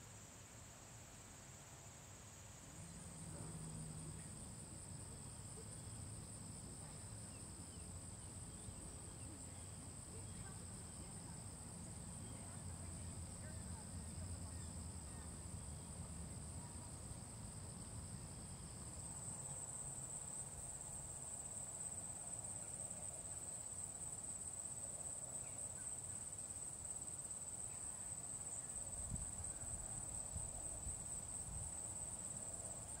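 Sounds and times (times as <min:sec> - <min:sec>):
lower insect trill: 0:17.5 - 0:33.0.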